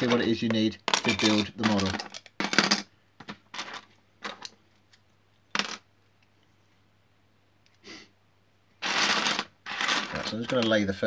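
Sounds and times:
plastic bricks clattering: 0.0 - 4.5, 8.8 - 10.9.

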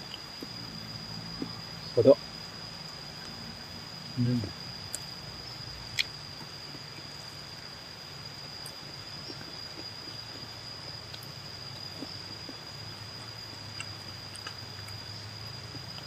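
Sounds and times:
insect trilling: 0.0 - 16.0
low background hum: 0.0 - 16.0
chewing: 13.5 - 15.0.

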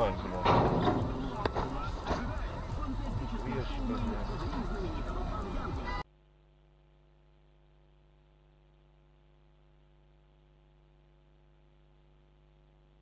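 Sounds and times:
faint electrical hum: 4.6 - 13.0.

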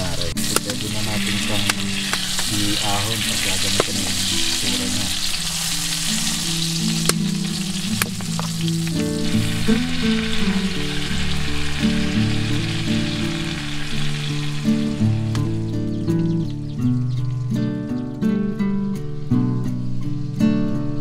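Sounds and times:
fish sizzling in a pan: 0.0 - 16.6
background music with melody: 0.0 - 21.0.

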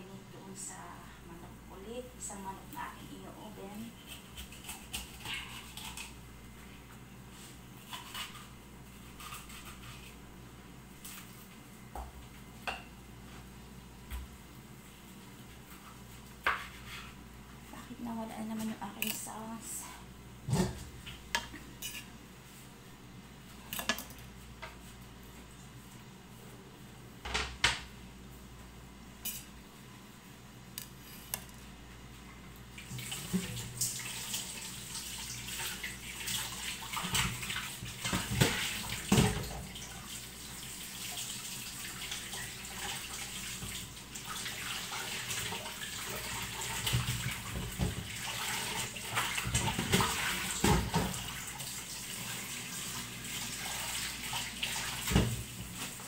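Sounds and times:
tap water running: 32.7 - 56.0
dishes clattering in a sink: 36.9 - 39.7, 46.3 - 51.3.

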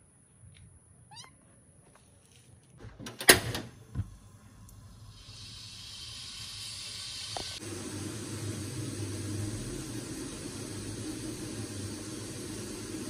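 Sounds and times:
gas flame hissing: 3.8 - 13.0.

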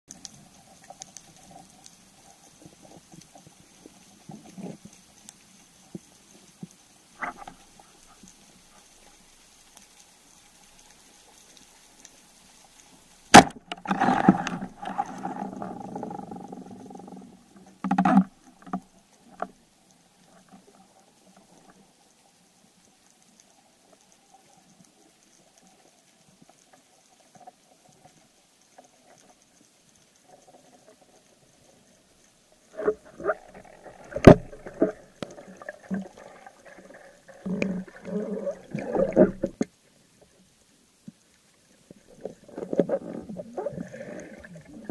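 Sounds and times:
underwater sloshing and bubbling: 0.1 - 44.9
speargun firing crack: 13.4 - 13.6.

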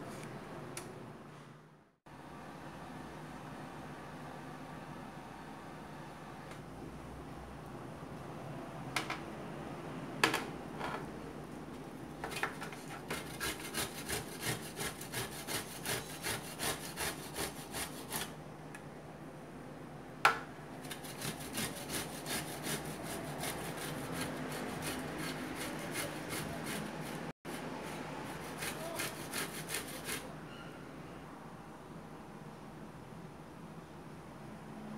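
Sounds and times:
carrot rasping on grater: 12.9 - 18.3, 20.8 - 30.3.

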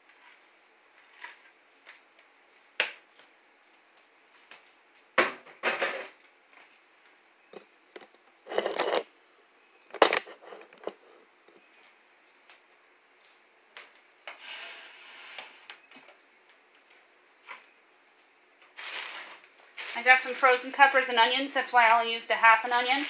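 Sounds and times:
rustling and scraping: 0.0 - 5.1, 5.7 - 9.1, 9.8 - 12.5, 18.6 - 20.4, 22.6 - 23.0.

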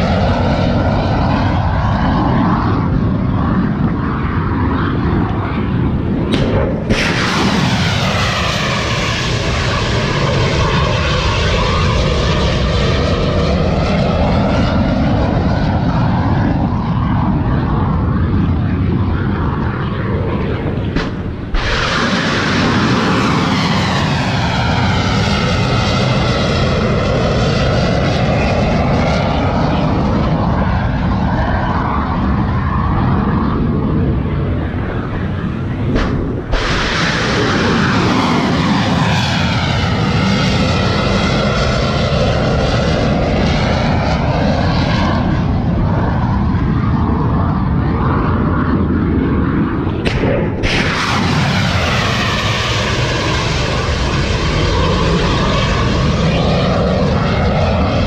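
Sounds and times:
missile roar: 4.6 - 58.0
rocket booster blast: 5.6 - 13.3, 20.3 - 27.0, 35.2 - 41.1, 49.8 - 56.2.

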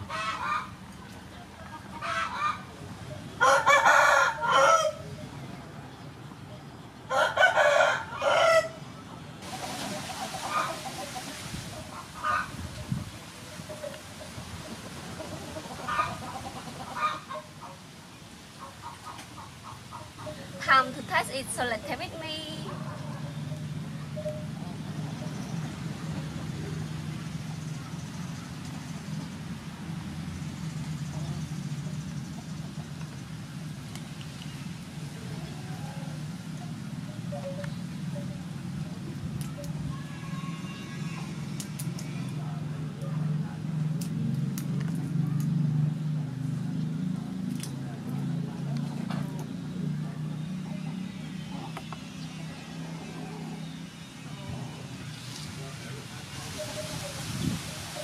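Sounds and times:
chicken calls: 0.0 - 2.8, 9.4 - 12.8, 13.4 - 17.8
rooster crowing: 3.4 - 5.0, 7.1 - 8.8.

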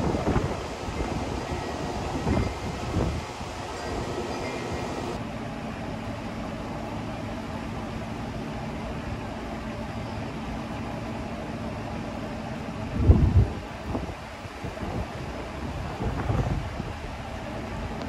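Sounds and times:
wind gust buffeting microphone: 0.0 - 5.2, 13.0 - 17.2
steady outdoor rushing noise: 0.0 - 18.0.

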